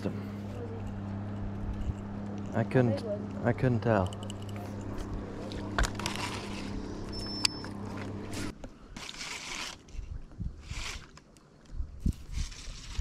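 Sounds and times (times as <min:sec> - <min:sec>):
boat motor humming: 0:00.0 - 0:08.5.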